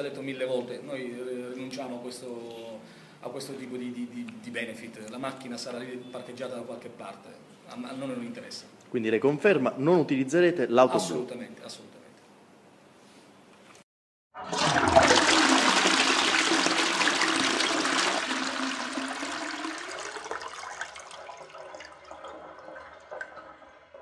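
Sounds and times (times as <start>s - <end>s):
toilet flushing: 14.4s - 24.0s.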